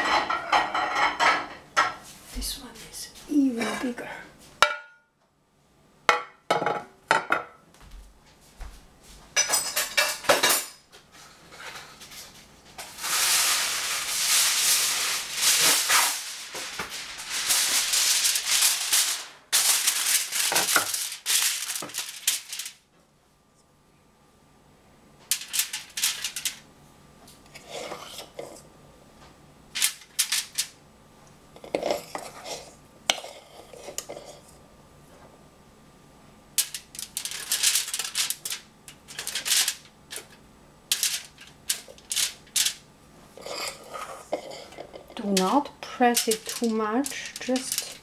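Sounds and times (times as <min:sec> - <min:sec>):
dish and utensils clinking: 0:00.0 - 0:02.0, 0:09.4 - 0:10.8
aluminium foil crackling: 0:12.0 - 0:22.9, 0:25.2 - 0:26.7, 0:29.7 - 0:30.8, 0:36.6 - 0:48.0.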